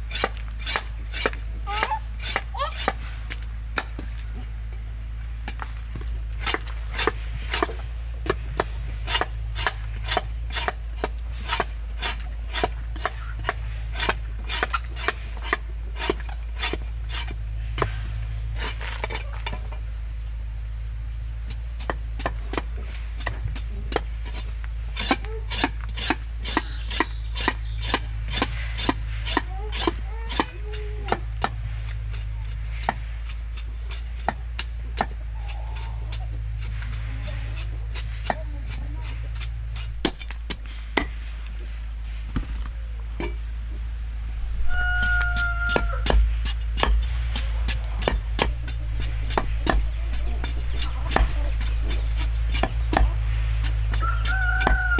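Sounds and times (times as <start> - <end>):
cleaver chopping on wooden block: 25.0 - 31.6, 45.0 - 54.9.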